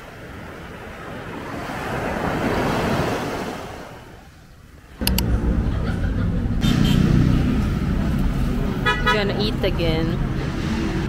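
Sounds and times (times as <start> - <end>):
street noise: 4.9 - 11.0
sharp clicks: 5.0 - 5.3
vehicle engine rumble: 5.0 - 11.0.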